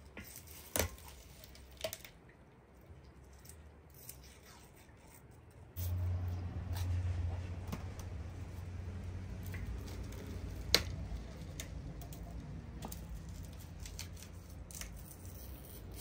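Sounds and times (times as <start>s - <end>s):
low steady hum: 0.0s - 16.0s
knife cutting onion: 12.8s - 16.0s.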